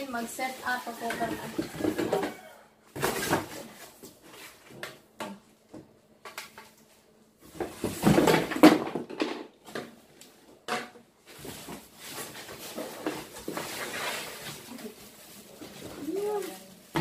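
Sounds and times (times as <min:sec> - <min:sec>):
cardboard and plastic rustling: 0:00.0 - 0:05.1, 0:05.7 - 0:17.0.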